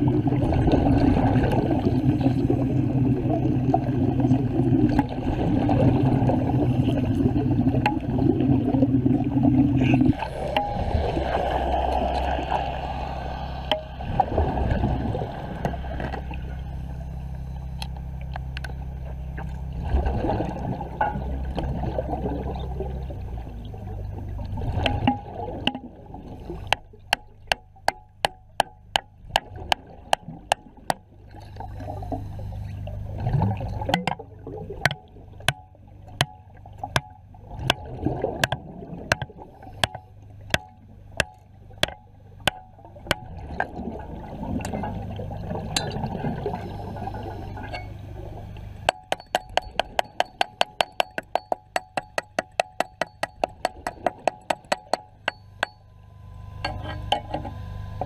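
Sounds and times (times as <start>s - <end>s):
low steady hum: 0.0s - 58.0s
underwater bubbling and gurgling: 0.0s - 58.0s.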